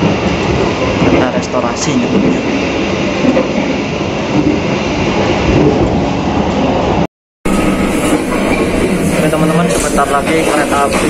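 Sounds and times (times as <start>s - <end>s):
train rumble and rattle: 0.0s - 11.0s.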